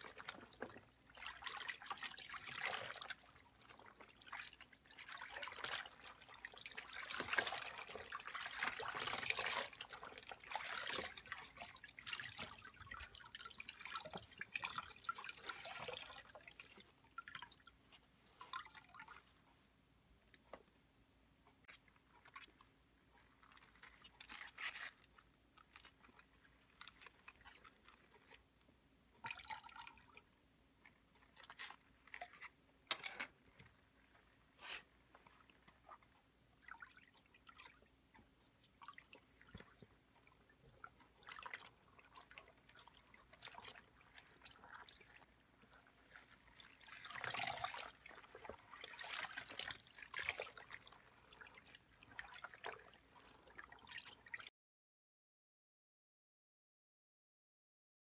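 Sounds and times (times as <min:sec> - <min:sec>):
water splashing in a basin: 0:00.0 - 0:19.4, 0:29.2 - 0:32.6, 0:33.2 - 0:54.5.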